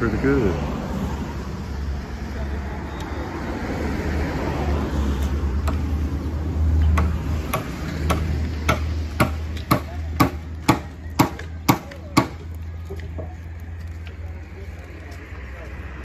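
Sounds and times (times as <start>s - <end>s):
road traffic rumble: 0.0s - 16.0s
sharp evenly spaced knocks: 5.6s - 5.9s, 6.8s - 12.5s.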